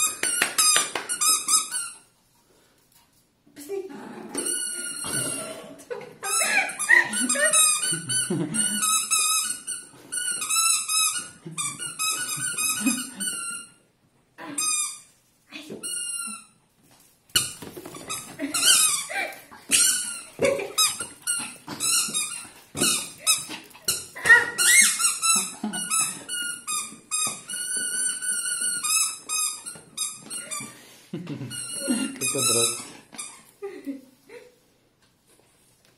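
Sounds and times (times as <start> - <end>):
squeaky dog toy squeaking: 0.0 - 2.1, 4.4 - 5.4, 6.2 - 13.8, 17.4 - 19.1, 19.7 - 30.7, 31.5 - 33.5.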